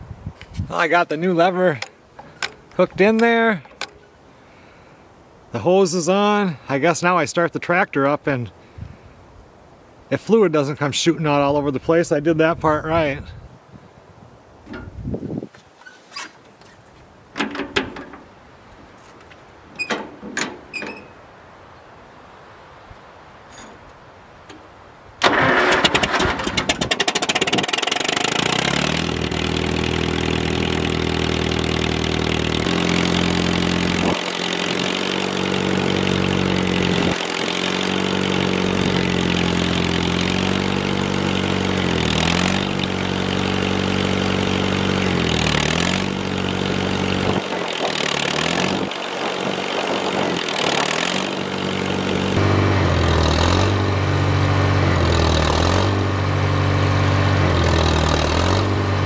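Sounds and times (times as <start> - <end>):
tractor engine running: 0.7 - 4.2, 24.5 - 59.0
starter cranking: 1.7 - 4.0, 25.2 - 53.8, 57.4 - 59.0.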